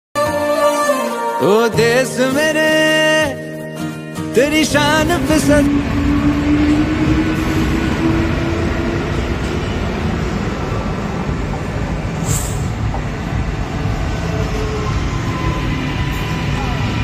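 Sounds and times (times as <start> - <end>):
train wheels rumbling on rails: 4.7 - 17.0
brief high hiss: 12.2 - 12.8.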